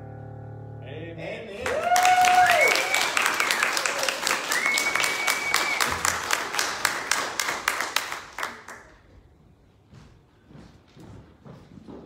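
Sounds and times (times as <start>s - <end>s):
small group applauding: 1.6s - 9.1s.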